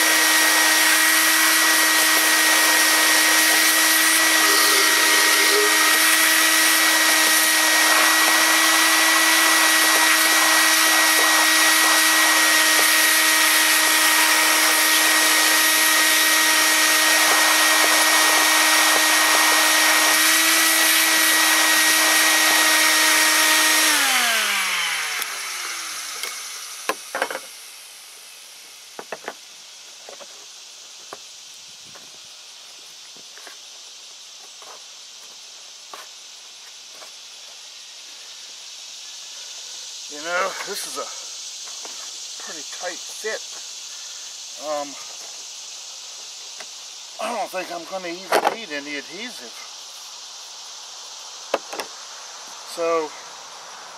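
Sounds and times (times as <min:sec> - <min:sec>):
motor winding down: 0:00.0 - 0:28.1
shop vac running: 0:00.0 - 0:29.4.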